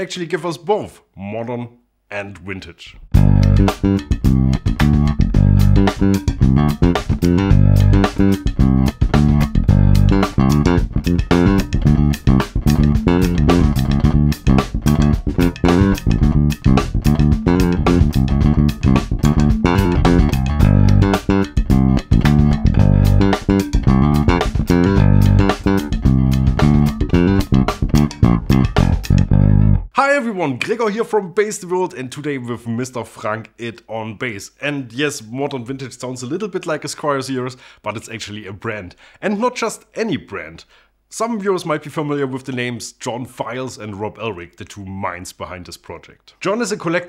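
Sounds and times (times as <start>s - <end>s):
electric bass notes through amp: 3.1s - 29.9s.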